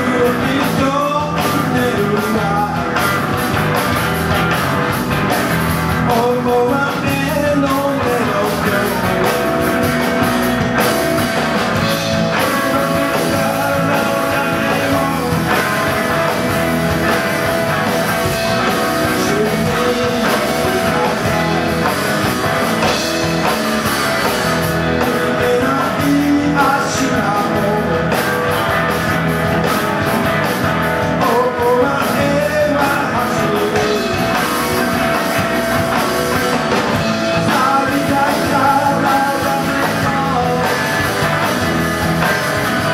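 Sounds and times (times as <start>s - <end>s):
man singing: 0.0s - 3.2s, 5.9s - 9.8s, 11.8s - 16.4s, 18.5s - 21.9s, 25.0s - 28.3s, 31.0s - 35.2s, 37.1s - 41.1s
drums: 0.0s - 42.9s
electric guitar: 0.0s - 42.9s
second guitar: 0.0s - 42.9s.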